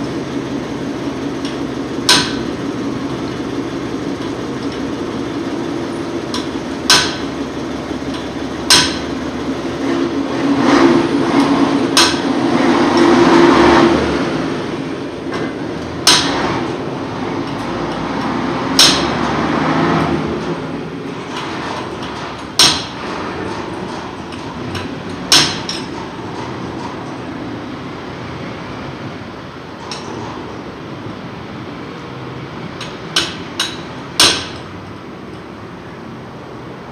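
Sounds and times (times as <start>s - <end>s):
steady background hum: 0.0s - 36.9s
hammer striking metal: 1.4s - 2.5s, 6.3s - 7.4s, 8.1s - 9.2s, 11.4s - 13.2s, 15.4s - 16.6s, 17.4s - 19.4s, 21.5s - 26.6s, 32.8s - 34.8s.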